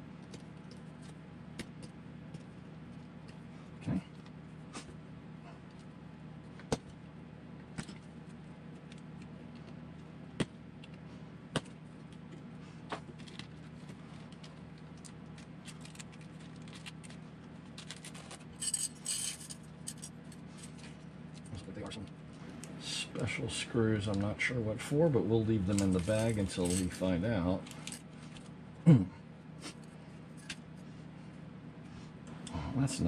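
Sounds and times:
steady low hum: 0.0s - 33.0s
small parts jingling rattle: 17.8s - 20.8s, 25.7s - 28.0s.

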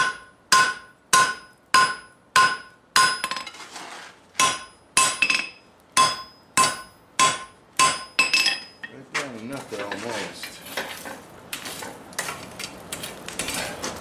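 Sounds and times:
hammer clanging on anvil: 0.0s - 3.6s, 4.4s - 9.0s.

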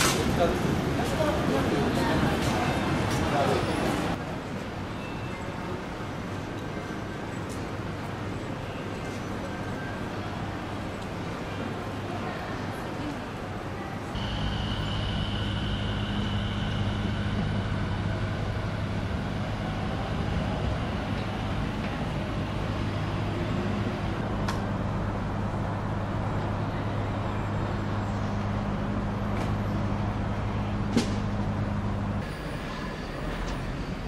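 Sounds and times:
thin high tone: 14.2s - 20.2s
steady low hum: 14.2s - 26.4s.

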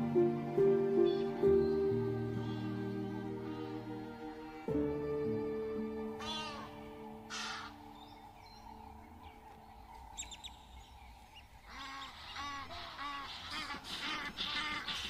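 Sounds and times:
rising and falling animal calls: 6.2s - 10.7s, 11.6s - 15.0s.

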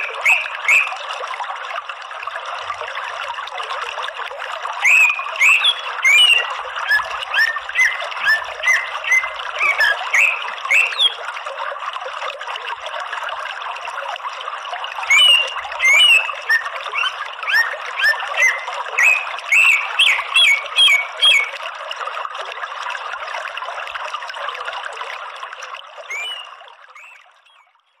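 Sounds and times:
bird chirping: 0.0s - 1.0s, 4.8s - 11.2s, 15.1s - 21.5s, 26.1s - 28.0s
running water: 0.0s - 28.0s.

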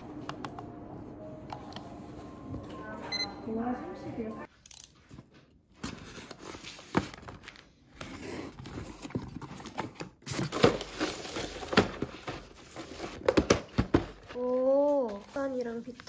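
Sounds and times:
paper wrapping crinkling: 14.2s - 16.0s.

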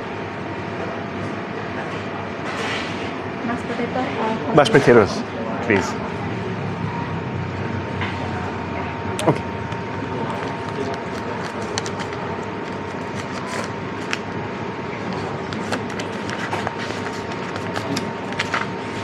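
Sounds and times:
restaurant background noise: 0.0s - 19.0s
wallet and banknotes rustling: 10.2s - 14.3s, 15.3s - 19.0s.

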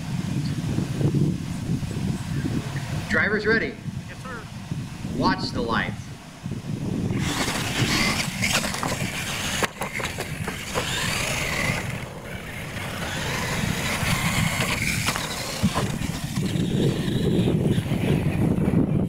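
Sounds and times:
tyre noise on dirt: 6.8s - 19.0s
rc truck motors whining: 7.0s - 19.0s.

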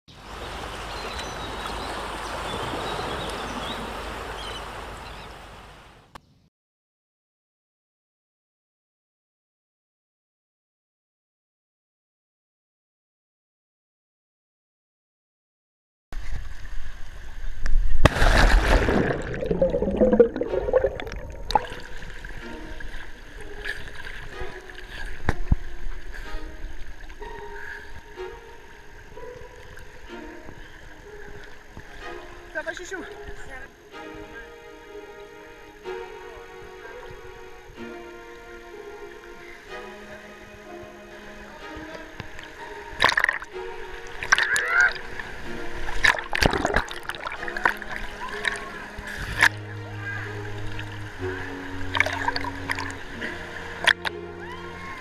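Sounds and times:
sea waves rushing: 0.2s - 6.1s, 18.0s - 24.7s, 42.5s - 55.0s
camera splashing into water: 18.0s - 21.7s
water bubbling and gurgling: 18.1s - 26.0s, 42.7s - 54.3s.

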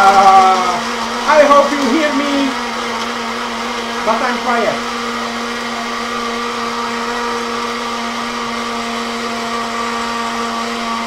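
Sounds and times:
blender motor whining: 0.0s - 11.0s.

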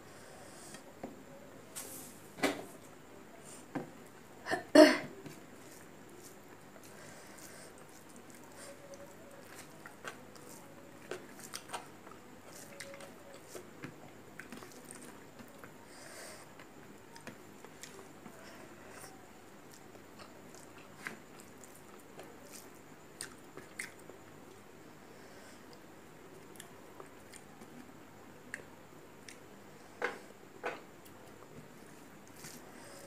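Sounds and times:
person chewing food: 5.3s - 15.8s, 16.6s - 24.1s, 26.4s - 27.6s.

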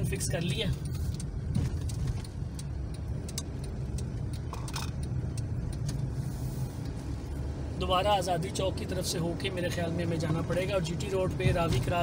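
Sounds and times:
light clicks and rattles: 0.0s - 7.2s
car cabin road rumble: 0.0s - 12.0s.

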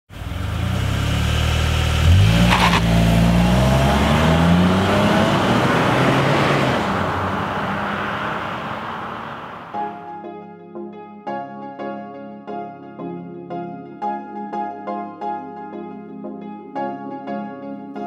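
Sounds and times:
car engine revving and accelerating: 0.1s - 9.9s
sharp engine crackle: 0.2s - 9.9s.

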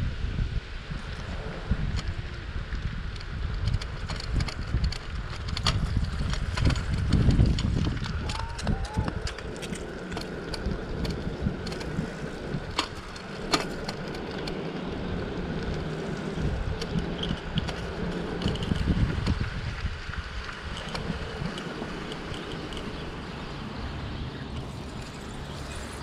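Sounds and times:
bicycle tyre and wind noise: 0.0s - 26.0s
bike clicks and rattles: 0.9s - 26.0s.

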